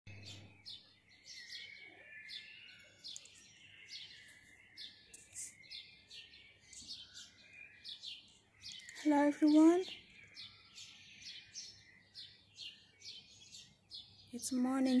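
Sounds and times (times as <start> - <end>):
high bird twittering: 0.1 - 15.0
small birds chirping: 0.1 - 15.0.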